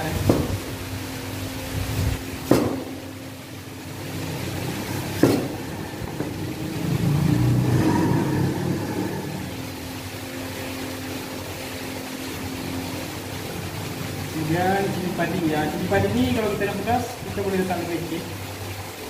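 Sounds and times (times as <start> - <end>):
motor vehicle rumble: 0.0 - 16.4
steady low hum: 0.0 - 19.0
knife knocking on cutting board: 5.2 - 5.6.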